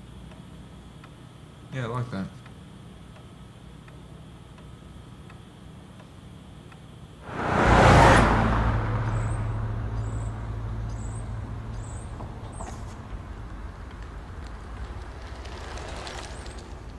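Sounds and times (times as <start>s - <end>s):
vehicle passing: 7.2s - 15.8s.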